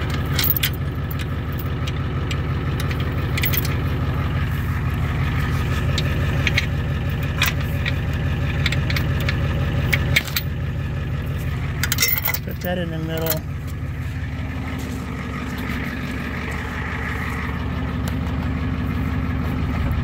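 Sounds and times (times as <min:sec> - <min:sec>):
truck engine idling: 0:00.0 - 0:20.0
chain clinking: 0:00.1 - 0:01.8, 0:02.8 - 0:03.9, 0:11.7 - 0:13.6.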